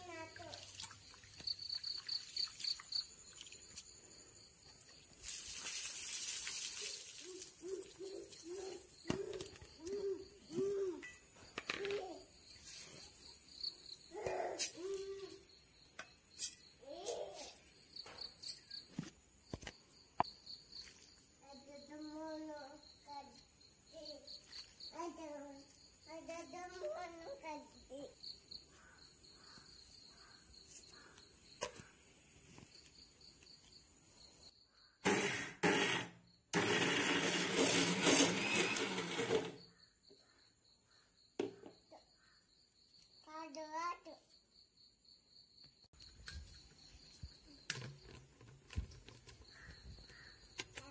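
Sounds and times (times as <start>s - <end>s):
insect trill: 0.1s - 31.8s, 39.6s - 50.9s
water splashing onto grass: 0.3s - 3.9s, 5.1s - 7.6s
bird hooting: 7.3s - 11.1s.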